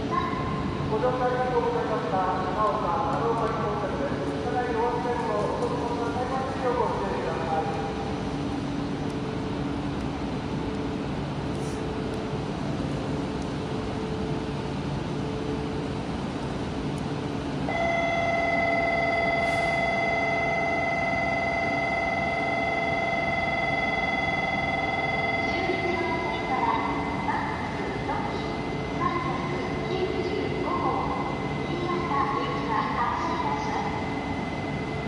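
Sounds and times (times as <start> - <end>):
train humming at platform: 0.0 - 35.0
electronic departure bell: 17.7 - 25.6.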